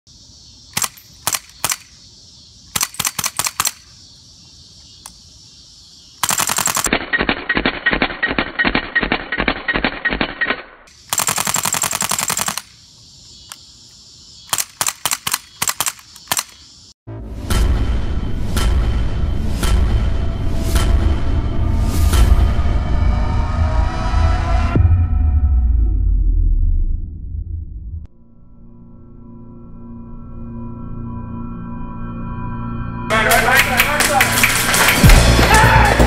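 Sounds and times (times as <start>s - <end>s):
airsoft gun firing: 2.7s - 3.8s, 6.2s - 12.7s, 14.5s - 16.6s.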